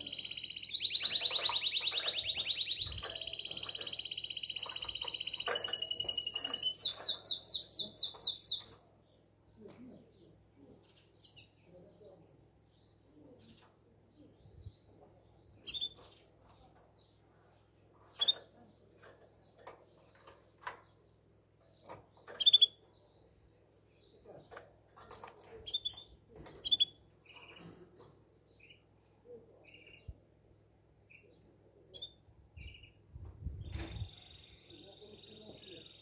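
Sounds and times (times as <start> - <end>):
canary chirping: 0.0 - 9.0, 15.5 - 27.7, 31.9 - 33.0, 34.0 - 36.0.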